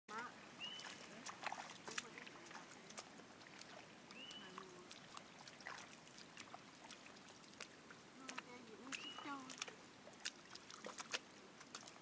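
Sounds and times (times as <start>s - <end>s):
feet wading through water and mud: 0.1s - 12.0s.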